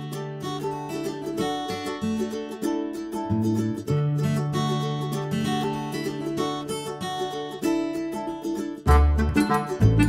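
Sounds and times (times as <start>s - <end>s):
plucked string music: 0.0s - 10.0s
deep bass: 8.9s - 10.0s.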